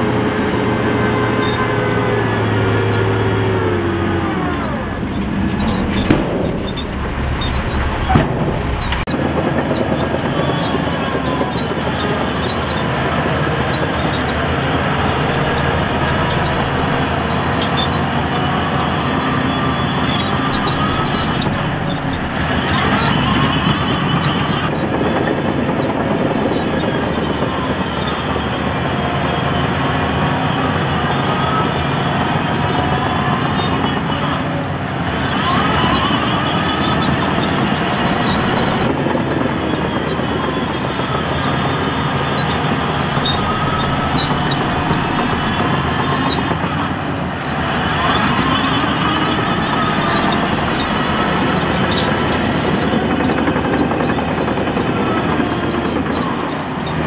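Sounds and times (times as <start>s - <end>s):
diesel machinery engines under load: 0.0s - 57.0s
sharp knocks: 5.3s - 9.1s.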